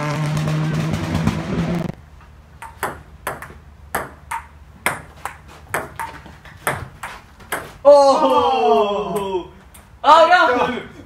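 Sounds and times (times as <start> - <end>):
loud buzzing tone: 0.0 - 2.0
table tennis ball clicking: 2.6 - 7.7.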